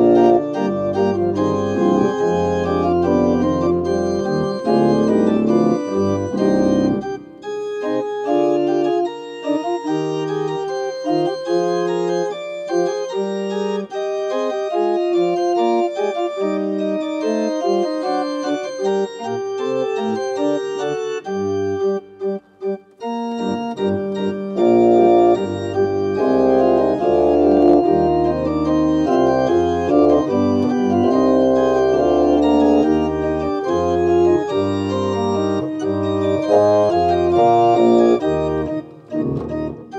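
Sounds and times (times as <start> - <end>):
church organ chords: 0.0 - 39.9.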